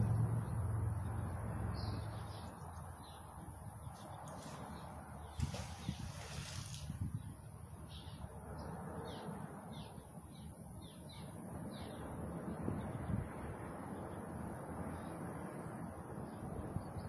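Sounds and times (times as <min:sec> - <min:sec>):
low steady rumble: 0:00.0 - 0:06.2
bird chirping: 0:00.3 - 0:12.2.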